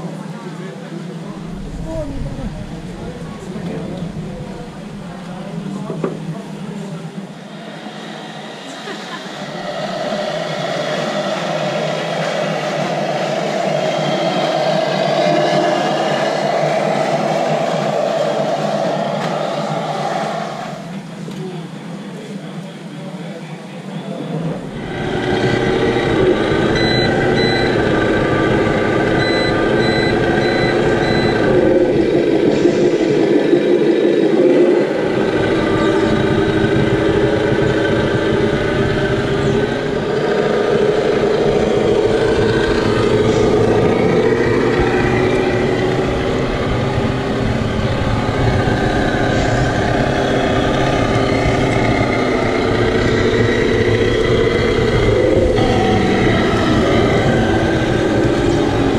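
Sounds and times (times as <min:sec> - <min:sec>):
simulated diesel truck engine: 0:01.0 - 0:21.3, 0:24.3 - 0:58.9
short reversing beeps: 0:26.8 - 0:27.9, 0:29.1 - 0:31.6.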